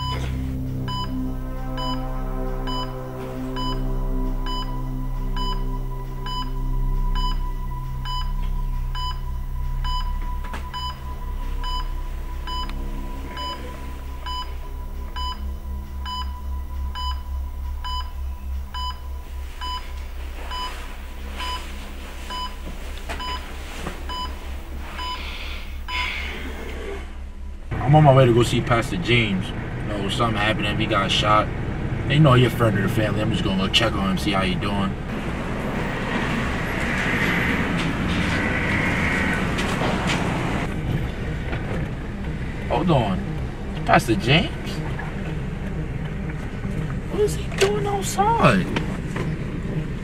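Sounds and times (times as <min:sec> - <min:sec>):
patient monitor beeping: 0:00.0 - 0:26.6
fast pulsing bass: 0:00.0 - 0:50.0
low droning music: 0:00.0 - 0:50.0.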